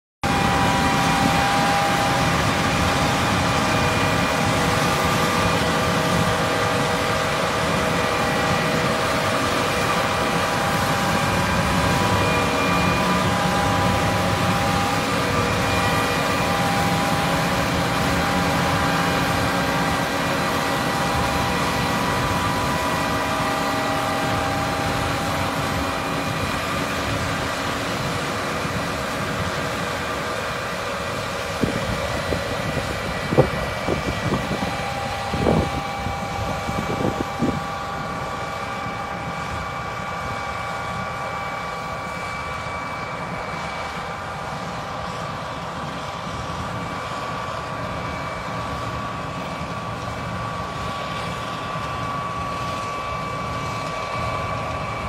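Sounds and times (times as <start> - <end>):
high whining tones: 0.2 - 44.2
combine harvester diesel drone: 0.2 - 55.0.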